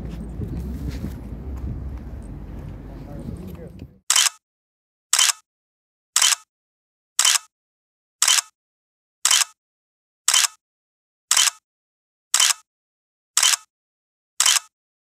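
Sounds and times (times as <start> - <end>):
camera shutter double click: 4.1 - 4.4, 5.2 - 5.4, 6.2 - 6.4, 7.2 - 7.5, 8.2 - 8.5, 9.3 - 9.6, 10.3 - 10.6, 11.3 - 11.6, 12.4 - 12.6, 13.4 - 13.7, 14.4 - 14.7.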